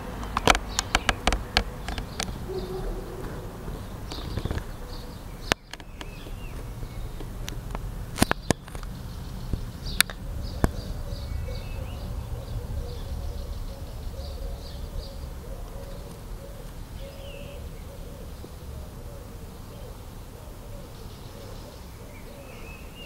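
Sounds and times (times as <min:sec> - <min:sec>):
small bird chirping: 0:00.0 - 0:18.7
low outdoor rumble: 0:00.0 - 0:23.0
sharp clicks: 0:00.2 - 0:04.8, 0:05.4 - 0:10.8.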